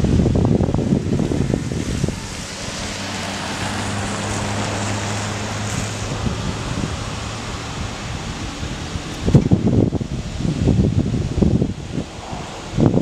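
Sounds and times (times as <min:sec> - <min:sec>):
truck engine humming: 0:00.0 - 0:13.0
wind on microphone: 0:00.0 - 0:13.0.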